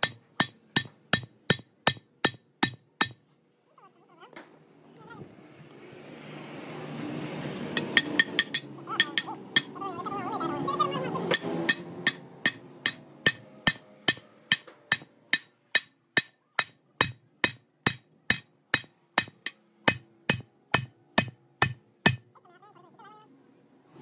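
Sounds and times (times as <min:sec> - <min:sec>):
hammer striking steel pins: 0:00.0 - 0:03.2, 0:07.7 - 0:09.8, 0:11.2 - 0:22.3.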